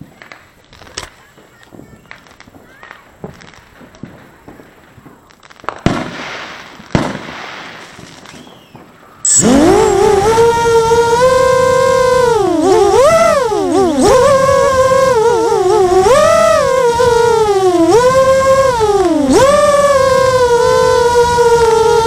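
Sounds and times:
loud firework bangs: 0.0 - 21.8
distant firework pops and crackles: 0.0 - 22.0
loud wavering tone: 9.2 - 22.0.

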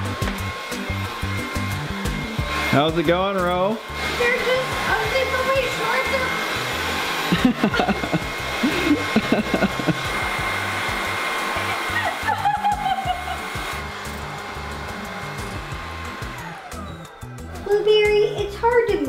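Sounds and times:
vacuum cleaner running: 0.0 - 19.0.

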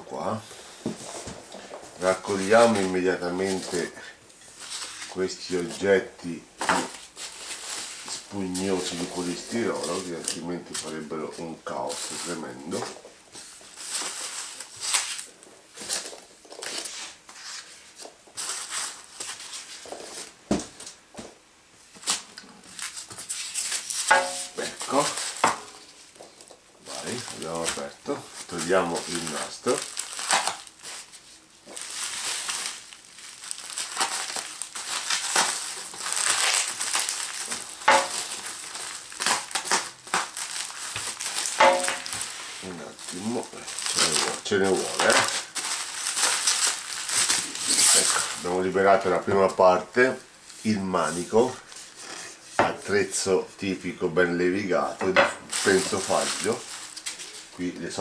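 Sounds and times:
bubble wrap crinkling: 0.8 - 21.0, 21.8 - 58.0
packing peanuts and plastic rustling: 1.0 - 21.0, 22.0 - 58.0.

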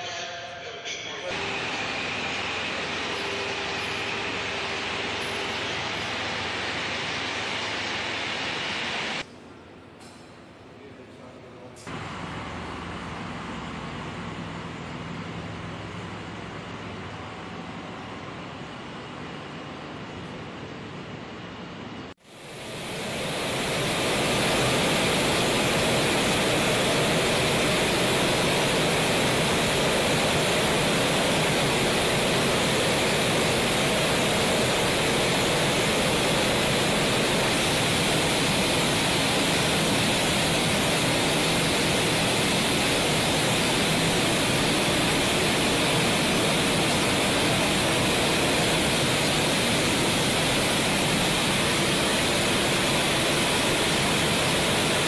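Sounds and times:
steady rushing roar: 1.3 - 9.3, 22.2 - 55.0.

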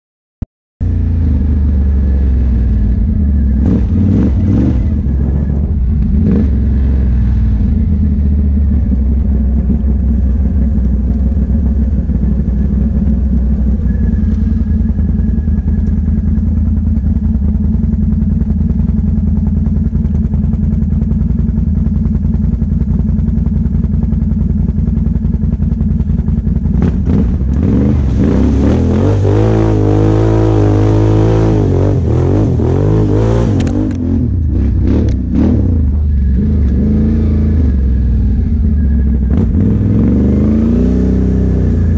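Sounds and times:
atv engine running: 0.8 - 41.9
mud splashing: 25.9 - 33.5.

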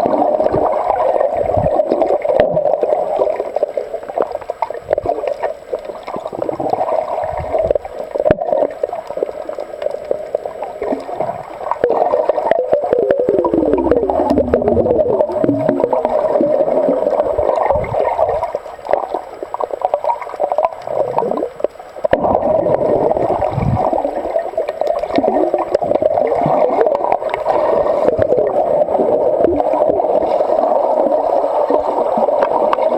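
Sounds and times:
muffled underwater gurgling: 0.0 - 32.9
underwater clicks and knocks: 4.2 - 10.0, 10.9 - 27.5.

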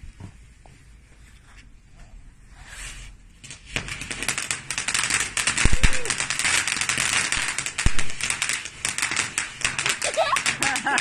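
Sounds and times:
firework hissing and crackling: 2.6 - 11.0.

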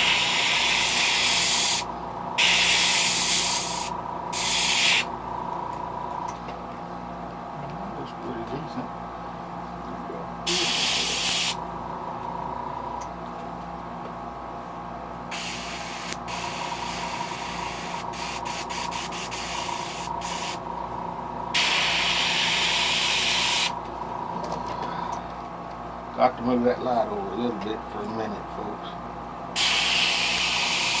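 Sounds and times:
airbrush hissing air: 0.0 - 5.1, 10.5 - 11.6, 15.3 - 20.6, 21.5 - 23.8, 29.6 - 31.0
steady low hum: 0.0 - 31.0.

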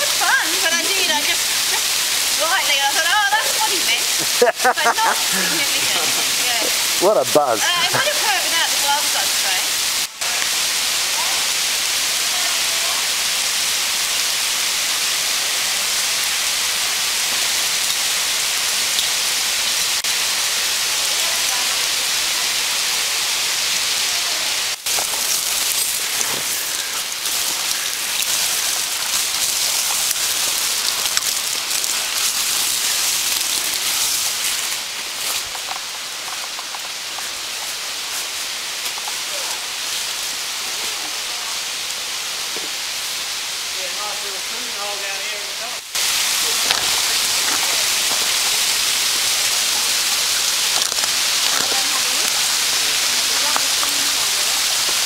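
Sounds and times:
waterfall splashing: 0.0 - 55.0
crackles and knocks: 24.9 - 26.5.

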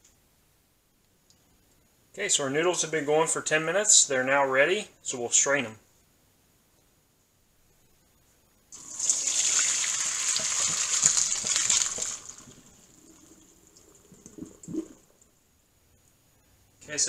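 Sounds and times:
water gushing into colander: 8.8 - 15.2.

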